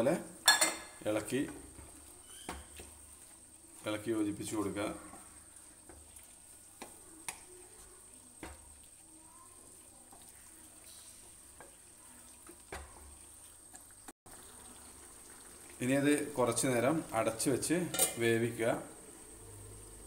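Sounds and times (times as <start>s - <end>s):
faint sizzle: 0.0s - 20.0s
spatula stirring thick curry: 1.0s - 15.8s.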